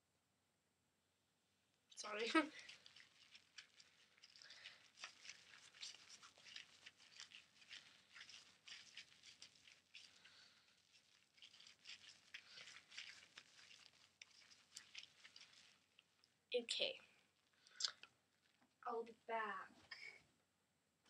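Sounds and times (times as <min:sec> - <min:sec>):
hands lathering wet hair: 0:02.0 - 0:16.4.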